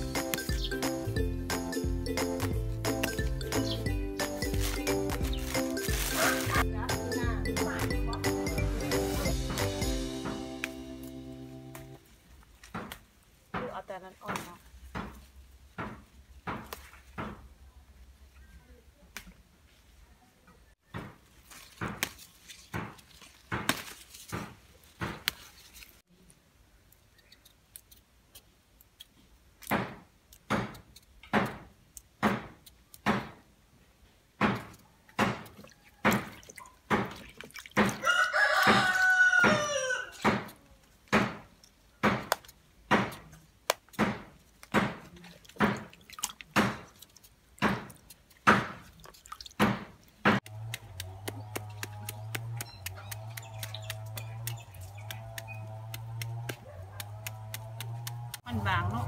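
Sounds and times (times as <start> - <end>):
rooster crowing: 38.0 - 40.2.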